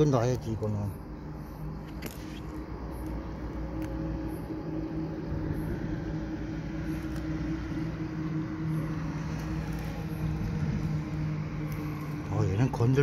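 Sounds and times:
engine humming: 0:00.0 - 0:13.0.

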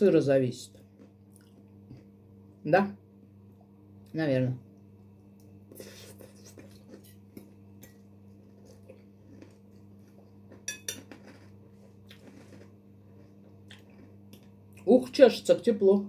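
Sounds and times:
cutlery clinking on plate: 0:10.6 - 0:11.4.

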